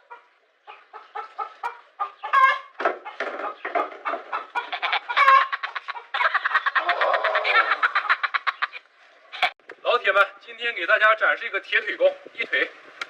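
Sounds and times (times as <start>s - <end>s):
chicken clucking: 0.0s - 8.8s.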